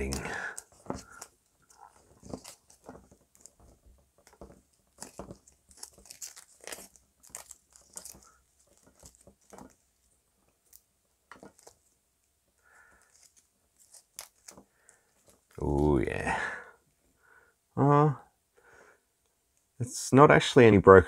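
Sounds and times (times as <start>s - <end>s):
sticky tape crackling as peeled: 0.0s - 15.9s.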